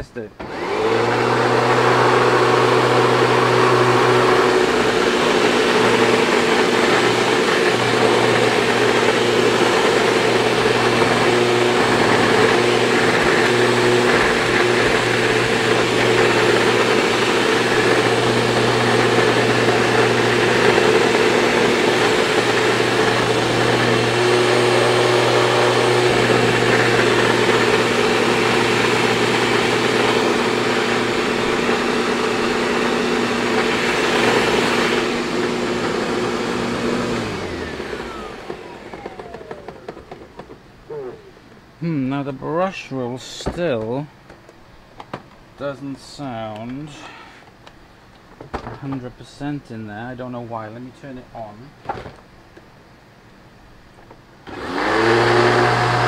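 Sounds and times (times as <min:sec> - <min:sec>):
person talking: 0:00.0 - 0:00.4, 0:40.9 - 0:44.2, 0:45.6 - 0:47.3, 0:48.8 - 0:51.8
upright vacuum cleaner humming: 0:00.4 - 0:42.1, 0:54.4 - 0:56.0.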